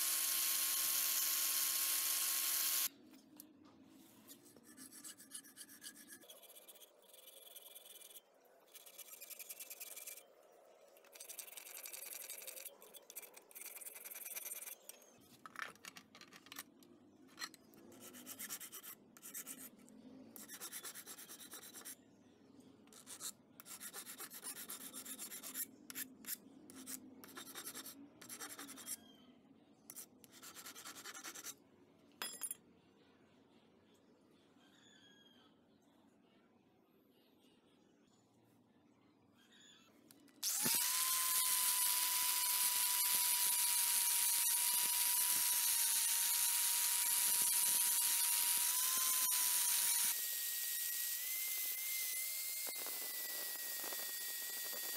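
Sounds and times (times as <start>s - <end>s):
disc sander running: 0.0s - 2.9s
filing on steel shaft: 4.4s - 10.3s, 11.1s - 15.0s, 17.3s - 19.8s, 20.4s - 22.0s, 22.9s - 29.0s, 29.9s - 31.6s.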